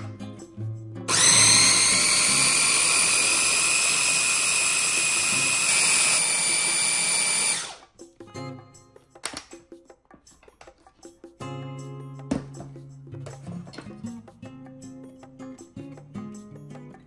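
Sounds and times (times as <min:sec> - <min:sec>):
kitchen mixer motor whining: 0:01.1 - 0:07.8.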